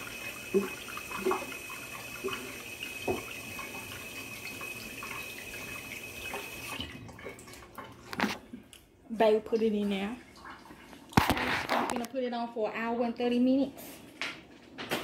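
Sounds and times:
faucet running into metal sink: 0.0 - 8.3.

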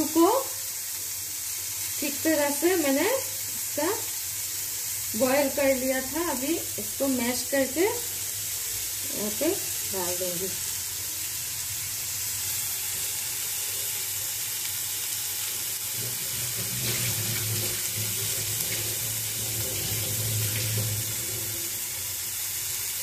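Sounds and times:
food sizzling in a pan: 0.0 - 23.0.

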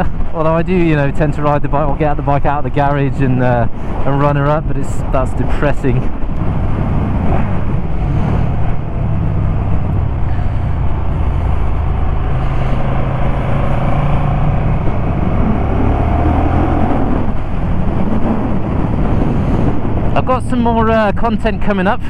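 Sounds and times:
motorcycle engine running: 6.4 - 15.9.

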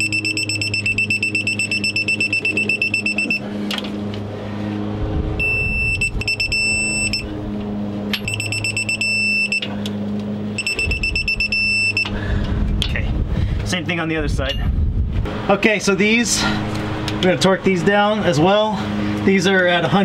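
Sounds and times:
fast high-pitched electronic beeping: 0.0 - 3.4, 5.4 - 7.2, 8.3 - 9.6, 10.6 - 12.1
steady low hum: 0.0 - 20.0.

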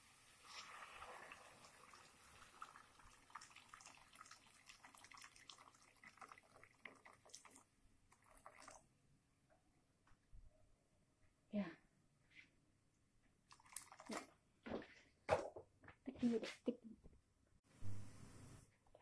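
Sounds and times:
water splashing into frying pan: 0.0 - 8.8
water pouring from kettle: 0.0 - 8.9, 13.5 - 14.4.

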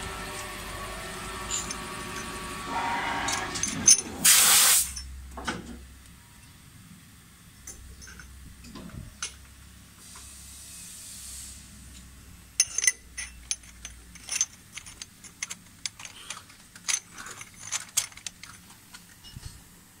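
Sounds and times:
metal parts clinking and clattering: 1.4 - 2.4, 3.2 - 4.3, 8.0 - 8.3, 12.6 - 19.5
brief hiss: 4.2 - 5.0.

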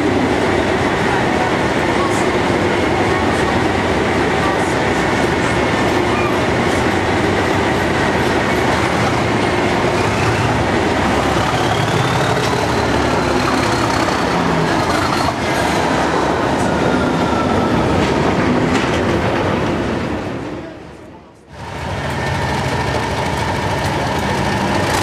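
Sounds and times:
diesel locomotive passing: 0.0 - 25.0
wheels clattering on rails: 4.3 - 16.0, 17.9 - 20.3, 21.6 - 25.0.

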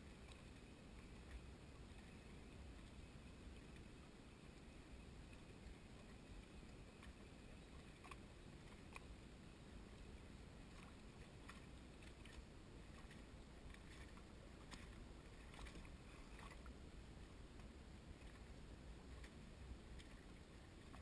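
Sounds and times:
soft irregular clicks: 0.0 - 21.0
waves lapping against dock: 5.3 - 21.0.

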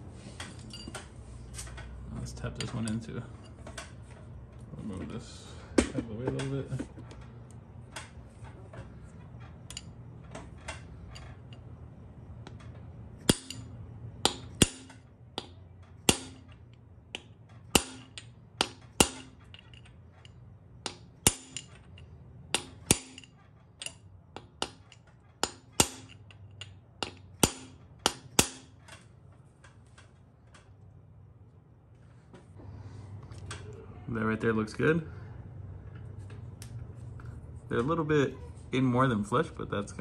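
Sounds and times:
hammer striking metal: 13.2 - 16.6, 17.2 - 19.7, 20.8 - 21.7, 22.5 - 28.8.

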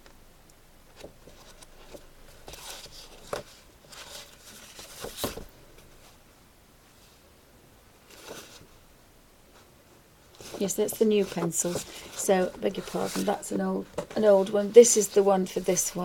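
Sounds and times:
paper rustling: 0.9 - 6.2, 8.1 - 8.8, 10.3 - 16.0.

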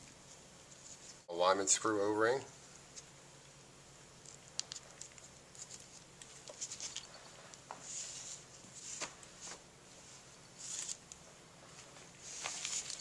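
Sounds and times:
light clicks of small parts: 4.2 - 7.7
gloved hands rustling: 4.2 - 13.0.

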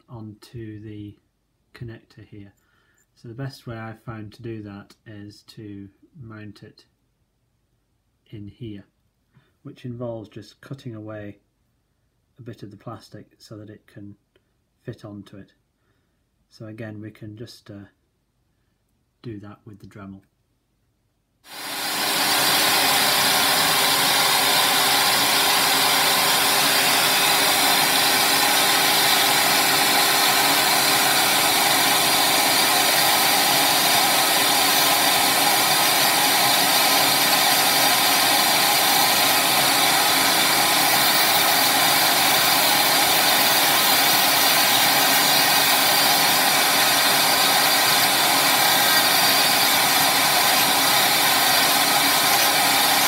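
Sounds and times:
rotary tool cutting plastic: 21.5 - 53.0
vacuum hose rushing: 21.5 - 53.0.

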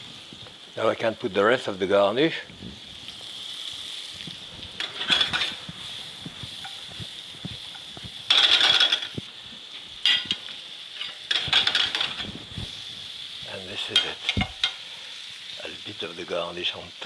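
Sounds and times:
vegetables sizzling in a skillet: 0.0 - 17.0
pan scraping and rattling: 4.8 - 5.7, 7.7 - 9.2, 11.0 - 12.4.

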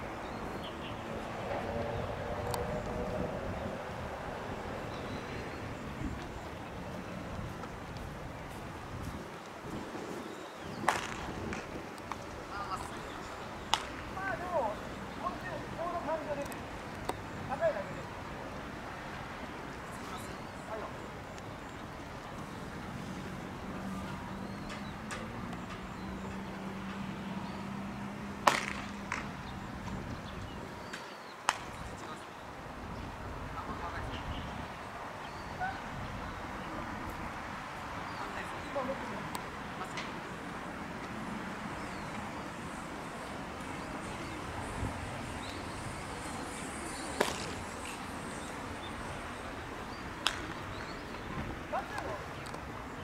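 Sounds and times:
outdoor background noise: 0.0 - 53.0
baseball popping into glove: 10.8 - 12.2, 13.7 - 14.0, 28.4 - 29.3, 47.2 - 47.6, 50.2 - 50.6.

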